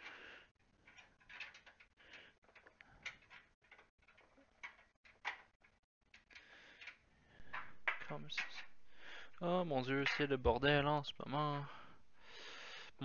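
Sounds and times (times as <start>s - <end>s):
metallic clicks and scraping: 0.7s - 8.8s.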